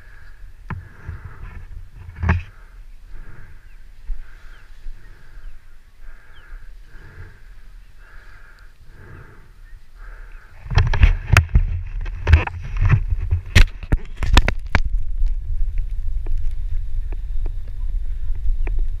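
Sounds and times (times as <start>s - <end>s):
wind rumbling on microphone: 0.0s - 19.0s
camera handling knocks and rustles: 10.6s - 14.7s.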